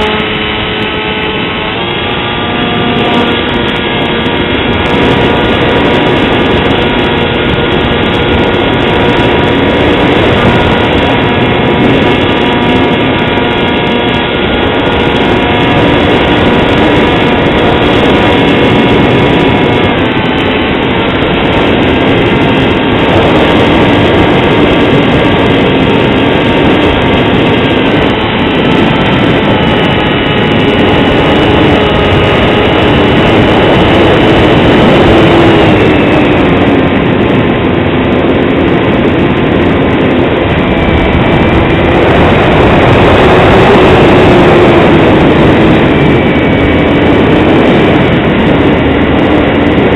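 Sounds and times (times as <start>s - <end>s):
motor and propeller whine: 0.0s - 49.9s
rush of air: 0.0s - 49.9s.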